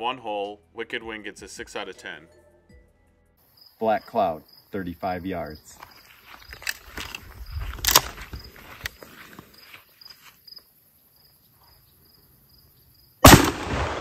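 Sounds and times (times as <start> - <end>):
insects chirping: 3.4 - 14.0
shotgun shot: 13.2 - 14.0.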